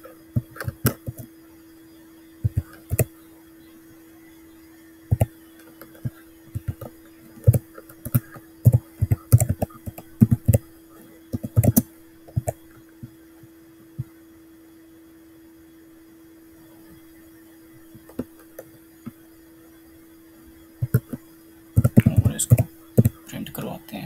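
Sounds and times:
faint steady hum: 0.0 - 24.0
computer keyboard typing: 0.4 - 1.3, 2.4 - 3.1, 5.1 - 10.6, 11.3 - 12.6, 20.8 - 21.2, 21.8 - 23.3.

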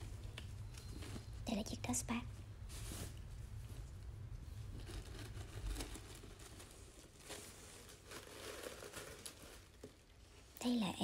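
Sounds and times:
canvas bag rustling: 4.7 - 10.1.

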